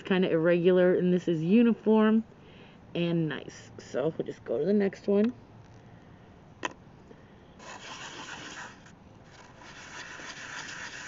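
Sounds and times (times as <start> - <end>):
gritty sandpaper rubbing: 7.6 - 11.0.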